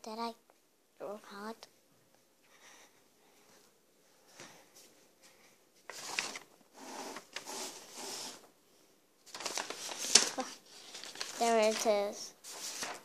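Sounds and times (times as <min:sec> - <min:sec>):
paper rustling: 0:05.9 - 0:08.5, 0:09.2 - 0:13.0.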